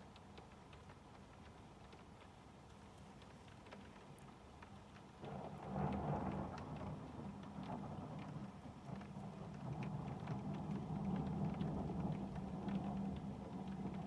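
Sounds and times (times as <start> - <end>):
rain falling: 0.0 - 14.0
raindrop ticks: 0.0 - 14.0
thunder rumbling: 5.2 - 14.0.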